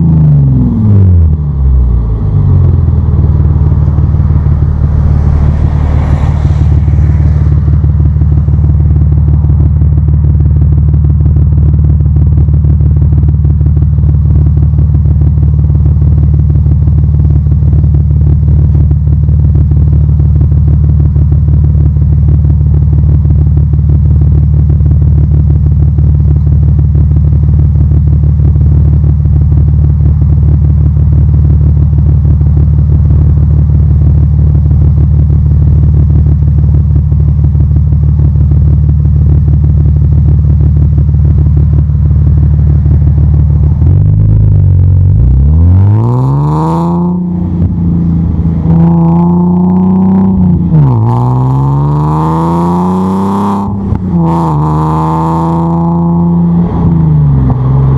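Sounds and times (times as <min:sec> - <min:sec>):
car engine idling and accelerating: 0:00.0 - 0:57.9.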